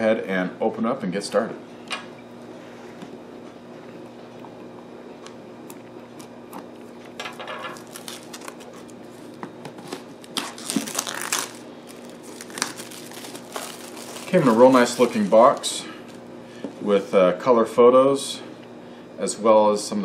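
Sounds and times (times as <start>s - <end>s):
plastic shrink wrap crinkling: 7.6s - 16.2s.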